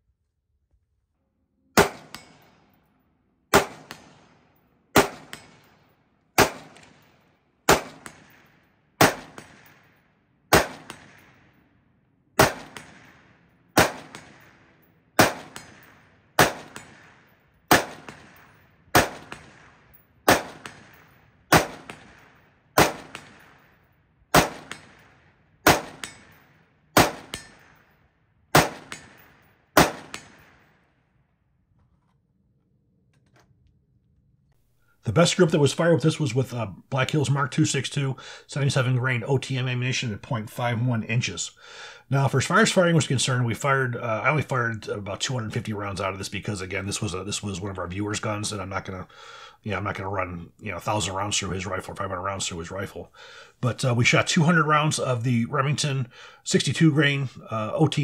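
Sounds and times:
rifle shots with ringing echo: 0:01.8 - 0:31.3.

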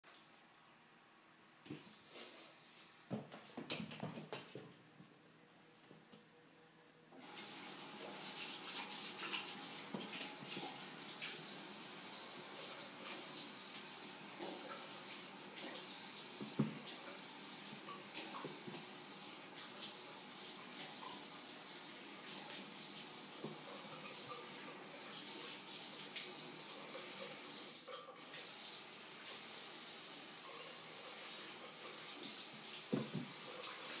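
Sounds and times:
running water hissing: 0:07.2 - 0:34.0.

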